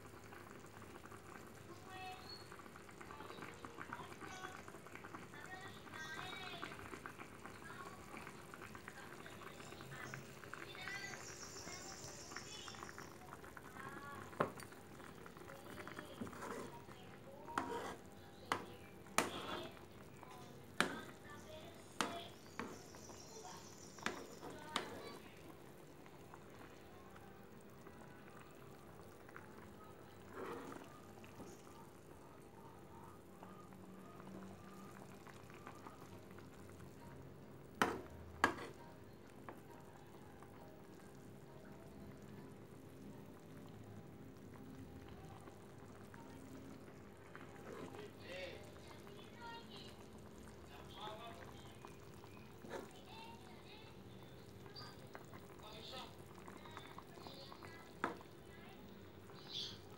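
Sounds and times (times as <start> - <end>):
metal spoon scraping a wok: 16.3 - 16.7, 17.6 - 18.0.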